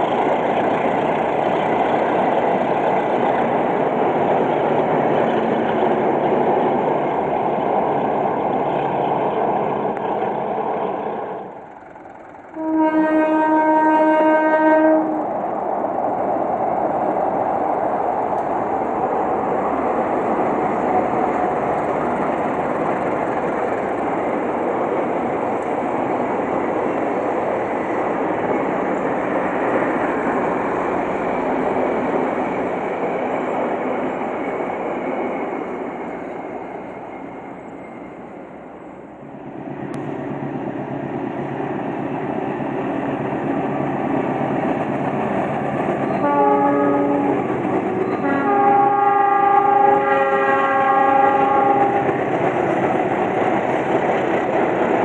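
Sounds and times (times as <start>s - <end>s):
train wheels rushing on track: 0.0s - 55.0s
train horn: 12.5s - 15.3s, 46.1s - 52.1s.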